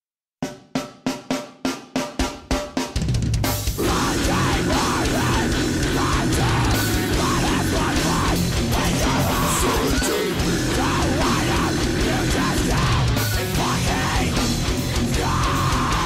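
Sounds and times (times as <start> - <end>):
drums: 0.4 - 16.0
distorted electric guitars: 3.0 - 16.0
bass guitar: 3.2 - 16.0.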